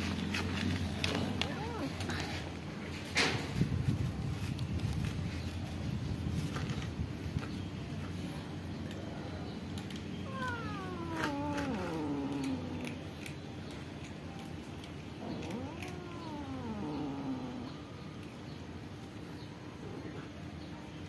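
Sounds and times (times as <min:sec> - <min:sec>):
cat meowing: 0:10.2 - 0:13.0, 0:15.2 - 0:17.8.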